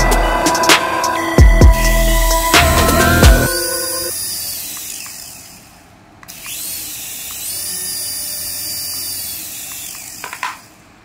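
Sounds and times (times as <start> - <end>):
toy helicopter rotors whining: 3.0 - 11.0.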